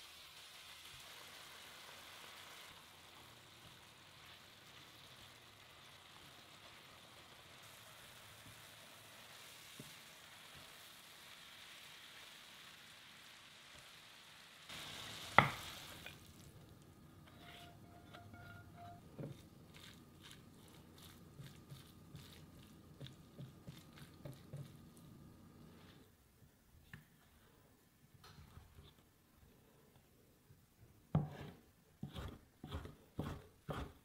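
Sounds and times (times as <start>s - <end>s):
vegetables sizzling in a frying pan: 0.0s - 26.0s.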